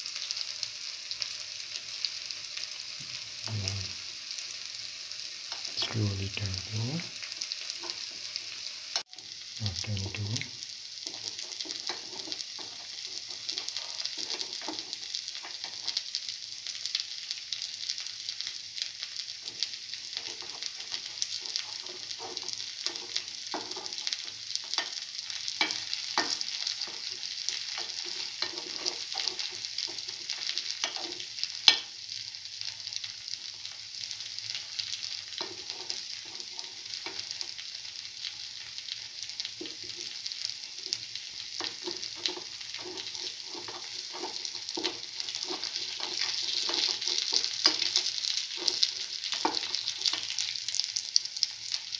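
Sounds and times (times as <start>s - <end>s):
fritters sizzling in oil: 0.0s - 51.9s
spoon clicking and scraping pan: 11.0s - 16.0s, 19.4s - 31.9s, 35.0s - 37.6s, 40.8s - 50.5s.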